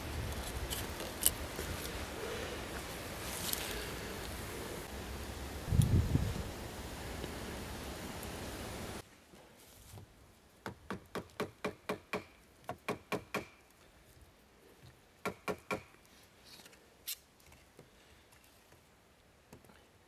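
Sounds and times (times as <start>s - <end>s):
rush of wind-like noise: 0.0s - 9.0s
knife scraping wood: 0.3s - 2.0s.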